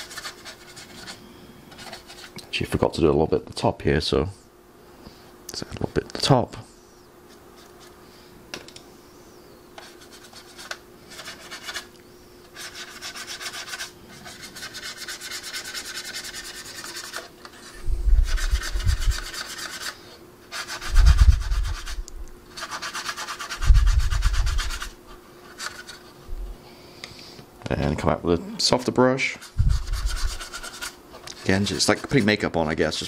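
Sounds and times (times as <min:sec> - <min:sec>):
paintbrush scrubbing on plastic: 0:00.0 - 0:02.4, 0:09.8 - 0:11.9, 0:12.5 - 0:26.2, 0:28.7 - 0:33.0
dull low thumps: 0:17.9 - 0:19.1, 0:26.3 - 0:26.6.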